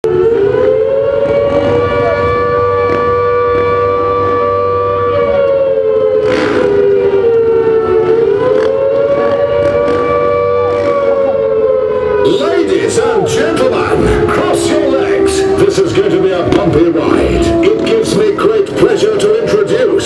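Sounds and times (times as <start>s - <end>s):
two-tone siren wail: 0.0s - 20.0s.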